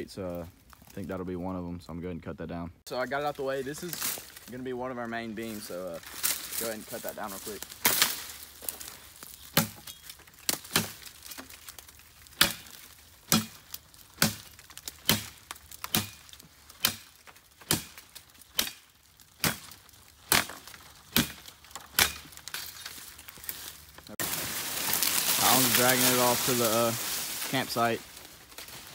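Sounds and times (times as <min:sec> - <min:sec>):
machete chopping tree trunk: 0:07.8 - 0:08.4, 0:09.5 - 0:11.5, 0:12.3 - 0:22.8.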